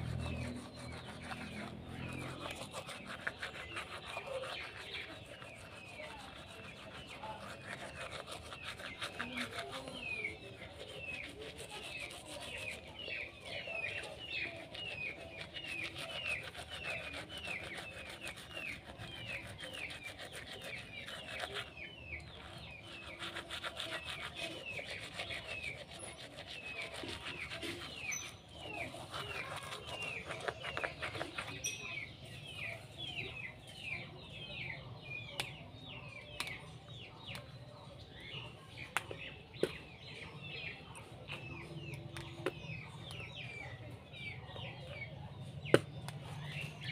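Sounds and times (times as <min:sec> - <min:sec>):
toothbrush scrubbing: 0:00.0 - 0:33.2
bird chirping: 0:00.0 - 0:46.9.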